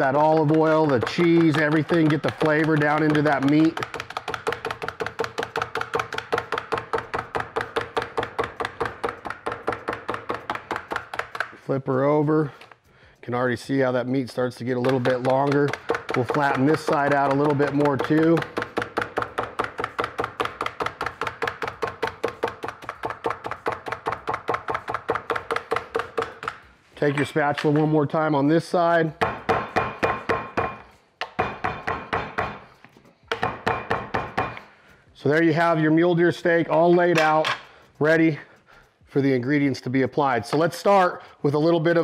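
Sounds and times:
meat tenderizer clacking on wood: 0.0 - 11.6, 14.3 - 26.7.

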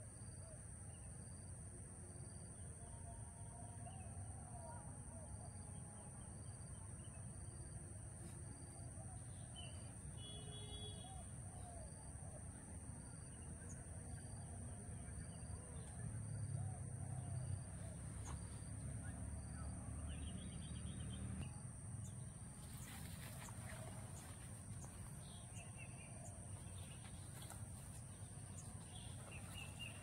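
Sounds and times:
birds chirping: 17.0 - 30.0.

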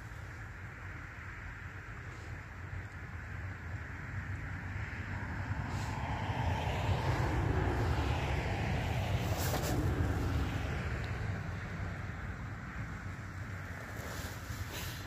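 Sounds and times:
steady low rumble: 0.0 - 15.0
car driving past: 4.8 - 12.0.

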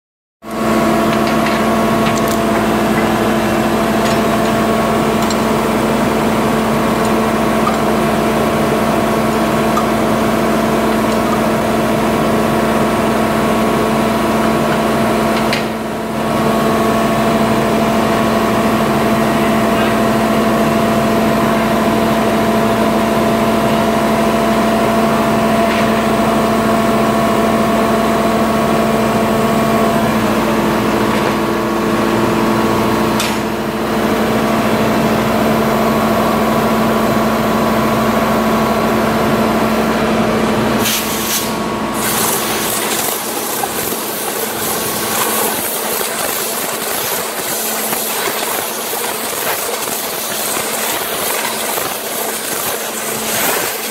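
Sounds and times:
shop machinery hum: 0.4 - 53.9
air blow gun hissing: 40.8 - 53.9.

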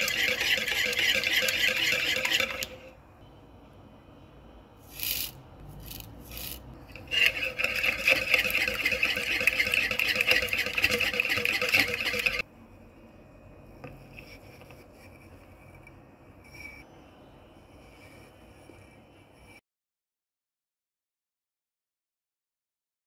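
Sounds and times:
whisk beating eggs in bowl: 0.0 - 2.9, 6.9 - 12.4.

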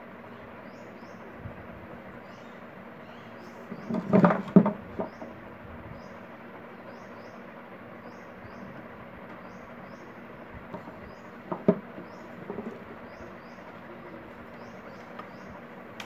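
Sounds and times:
metal fan body knocking on wooden table: 3.8 - 5.3, 10.7 - 12.8.

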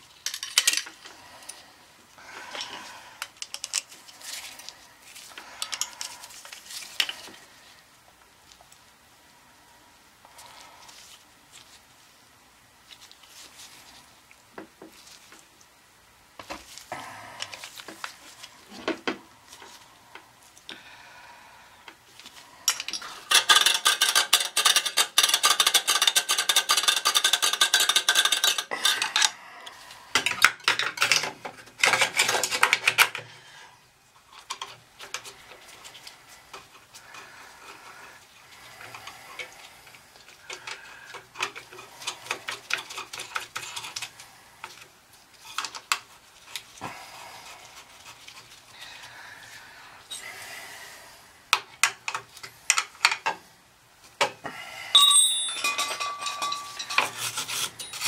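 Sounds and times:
tools clicking and tapping: 2.5 - 3.9, 22.7 - 29.3, 30.2 - 33.3, 51.5 - 53.4, 55.0 - 58.0
scrubbing on metal: 55.5 - 58.0.

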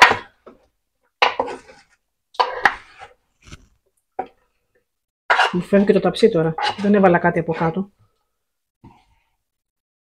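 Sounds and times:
wooden spoons scraping roasting pan: 1.2 - 3.8.

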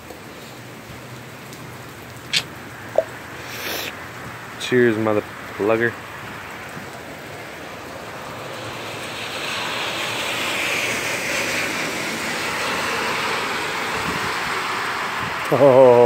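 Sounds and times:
car tyres hissing through water: 2.3 - 4.5, 5.3 - 15.5.

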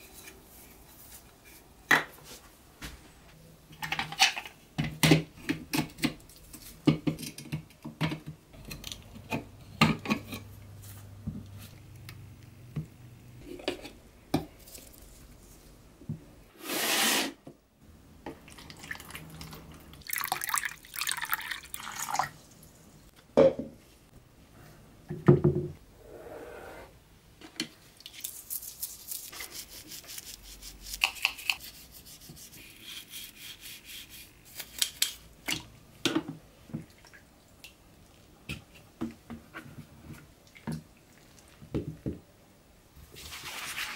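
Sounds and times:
liquid pouring into plastic tub: 20.0 - 22.4.

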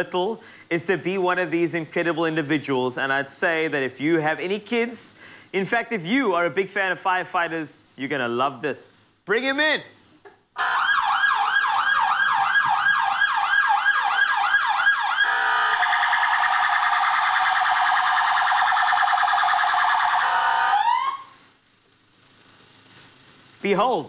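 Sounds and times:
electronic siren yelping: 10.6 - 21.4.

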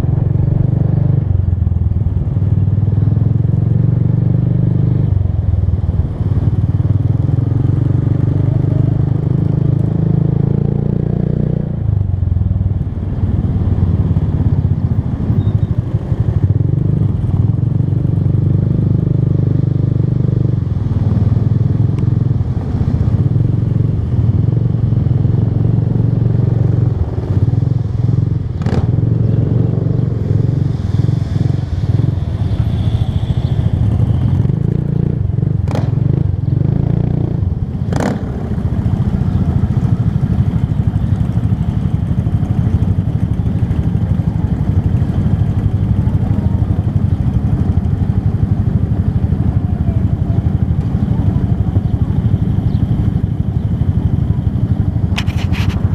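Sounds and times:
motorcycle engine running: 0.0 - 55.9.

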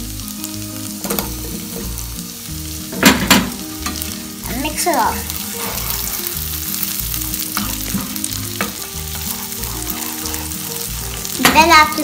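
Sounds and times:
background music: 0.0 - 12.0
butter sizzling in a frying pan: 0.0 - 12.0
spatula scraping a pan: 3.9 - 12.0.

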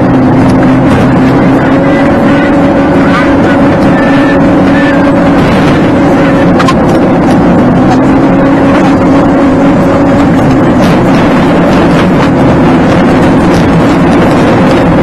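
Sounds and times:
car engine hum: 0.0 - 15.0
road and tyre noise: 0.0 - 15.0.

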